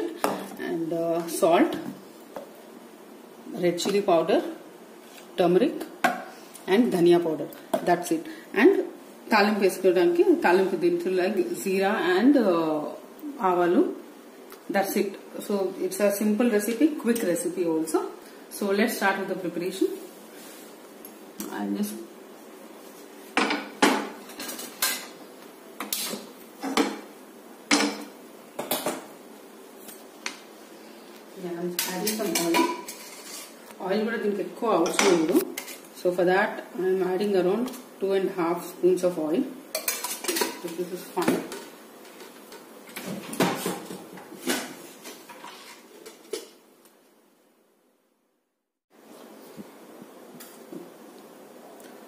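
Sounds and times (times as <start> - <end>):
pan and utensils clattering: 31.8 - 33.6, 39.7 - 46.6.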